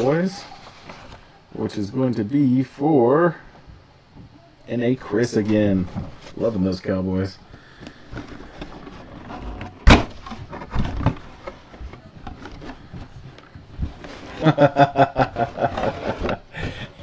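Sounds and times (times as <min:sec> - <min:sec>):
cardboard and packaging rustling: 0:00.0 - 0:01.5, 0:05.1 - 0:07.0, 0:07.6 - 0:16.6.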